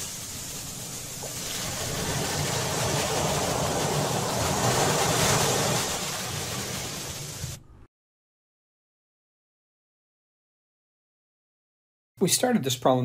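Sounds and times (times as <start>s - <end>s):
ocean surf washing on beach: 0.0s - 7.6s.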